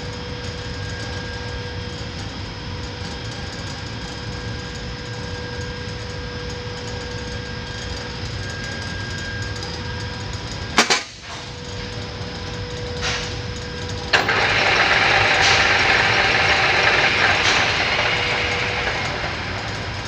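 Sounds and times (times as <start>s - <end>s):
loud even machine noise: 0.0s - 20.0s
metal lathe humming: 12.0s - 20.0s.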